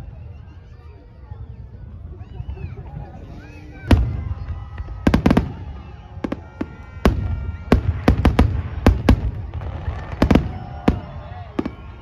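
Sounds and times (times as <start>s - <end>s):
fireworks bangs: 3.8s - 12.0s.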